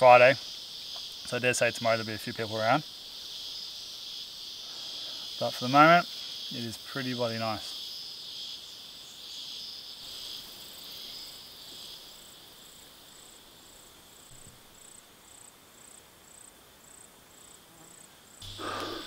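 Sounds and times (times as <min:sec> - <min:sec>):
faint high insect chirp: 0:00.0 - 0:19.0
insects buzzing: 0:00.0 - 0:19.0.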